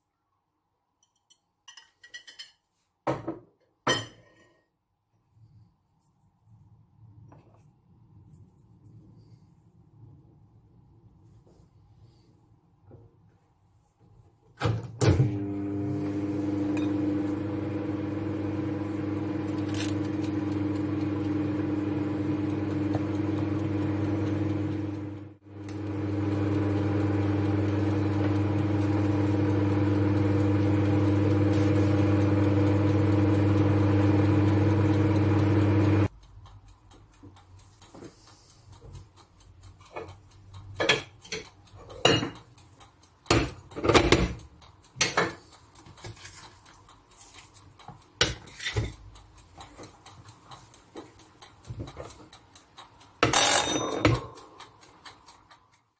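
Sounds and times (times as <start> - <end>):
microwave oven humming: 14.7 - 36.1, 53.0 - 55.5
short ring: 53.3 - 54.4.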